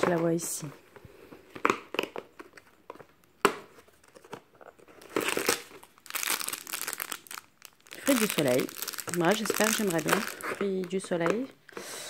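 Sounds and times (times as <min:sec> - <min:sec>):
plastic wrapper crinkling: 0:01.5 - 0:11.6.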